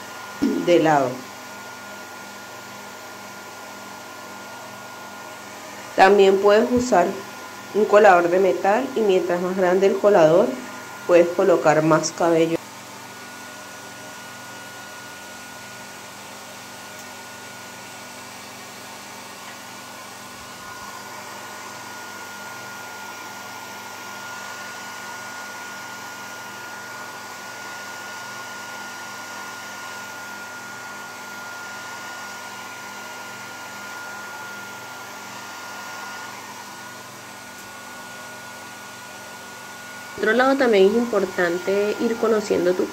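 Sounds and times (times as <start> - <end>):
hair dryer blowing air: 0.0 - 42.9
high whine: 0.4 - 1.2.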